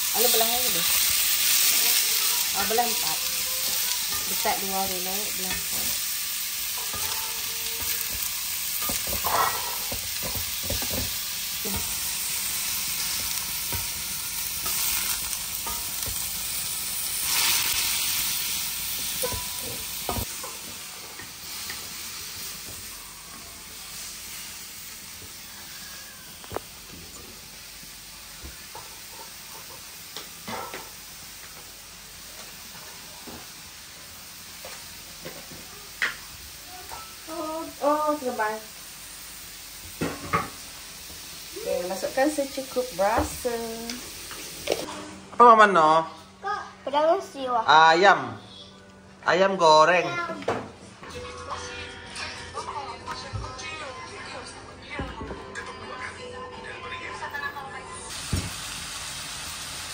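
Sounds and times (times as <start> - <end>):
meat sizzling in hot oil: 0.0 - 44.9, 58.1 - 59.9.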